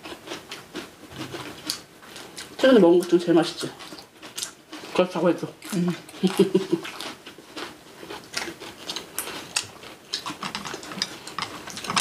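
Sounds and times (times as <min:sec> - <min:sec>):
utensils clicking on dishes: 0:10.2 - 0:12.0.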